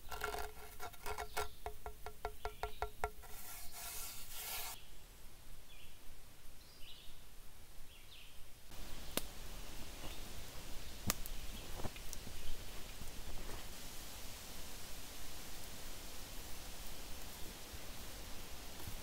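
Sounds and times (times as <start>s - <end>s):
hand rubbing clay tile: 0.0s - 4.8s.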